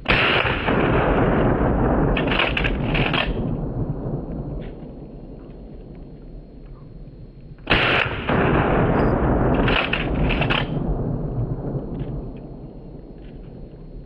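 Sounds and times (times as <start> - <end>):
shotgun blast: 0.0 - 4.0, 7.6 - 11.7.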